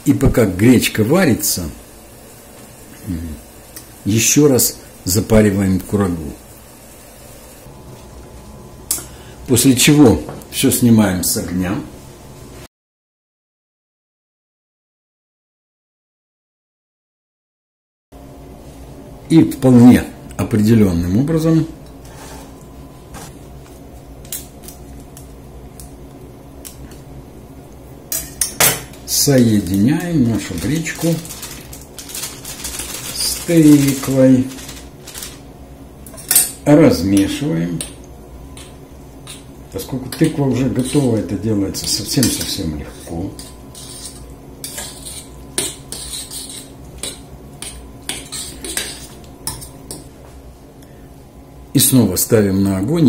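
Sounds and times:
low steady hum: 0.0 - 12.7, 18.2 - 53.0
plastic packet clicks and crinkles: 29.7 - 35.4
spoon scraping a steel saucepan: 42.9 - 49.7.

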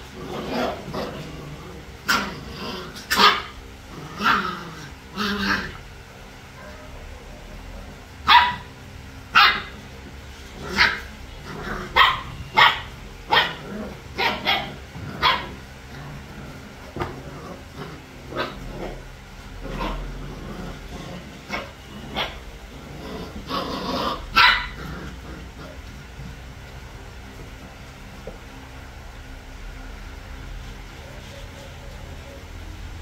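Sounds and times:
puppies yapping: 2.0 - 5.9, 6.5 - 22.5, 23.2 - 26.1.

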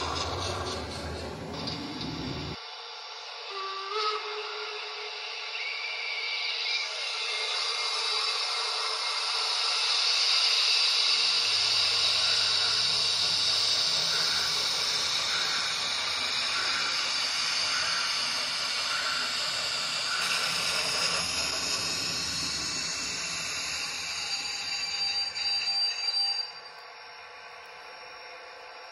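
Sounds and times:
low hum: 0.0 - 2.6
soft steam chuffs: 0.0 - 26.2
model locomotive steam hiss: 0.0 - 26.6.

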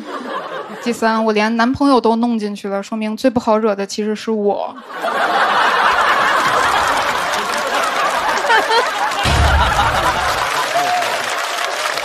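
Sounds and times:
audience laughing: 0.0 - 1.2, 4.8 - 12.0
audience applauding: 5.2 - 12.0.

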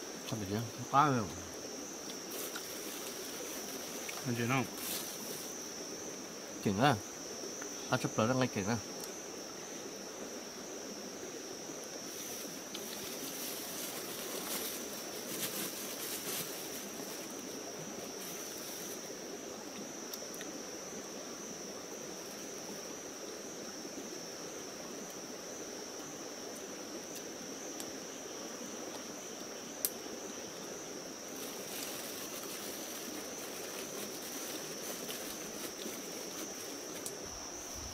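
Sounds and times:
stream flowing water: 0.0 - 6.5, 26.6 - 37.9
insects droning: 0.0 - 37.9
soft crackles: 2.0 - 5.6, 12.0 - 19.1, 31.2 - 37.9.

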